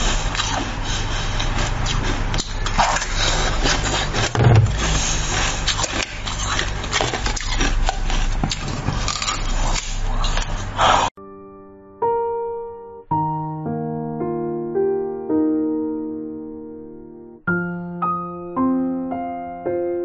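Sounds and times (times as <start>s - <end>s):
steady low hum: 0.0s - 11.1s.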